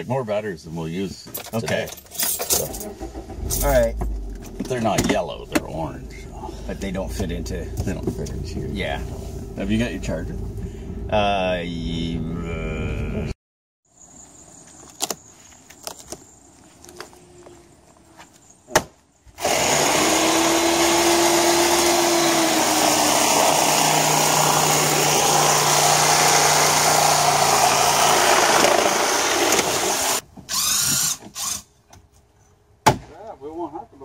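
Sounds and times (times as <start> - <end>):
cordless power drill running: 19.4 - 31.6.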